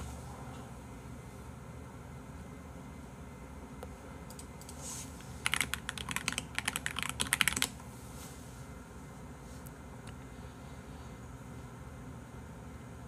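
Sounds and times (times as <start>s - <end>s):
computer keyboard typing: 5.4s - 7.8s.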